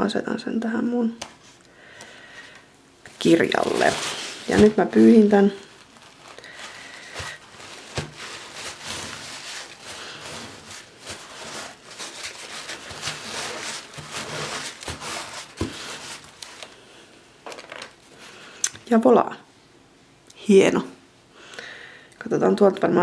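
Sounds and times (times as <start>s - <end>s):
paper towel scraping over stencil: 3.2s - 16.7s.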